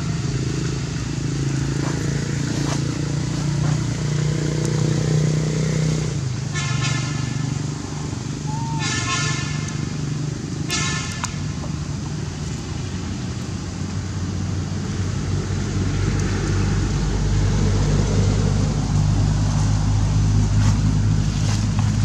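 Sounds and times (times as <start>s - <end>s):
vehicle engine running: 0.0s - 22.0s
high-pitched horn toot: 8.5s - 9.7s.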